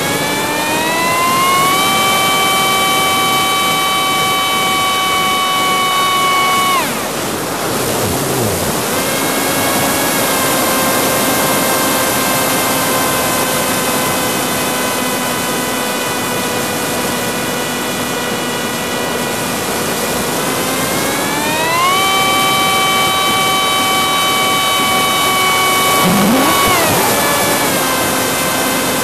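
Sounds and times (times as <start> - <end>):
drone motors and propellers whining: 0.0 - 11.0, 20.5 - 29.0.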